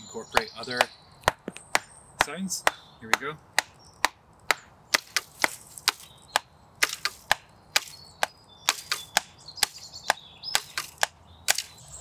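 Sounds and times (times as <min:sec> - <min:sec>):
wooden sticks knocking on log: 0:00.4 - 0:11.7.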